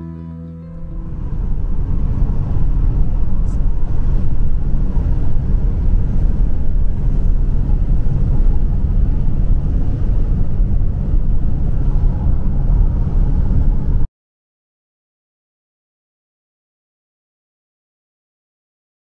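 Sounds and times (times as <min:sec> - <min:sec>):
car interior road noise: 0:00.7 - 0:14.1.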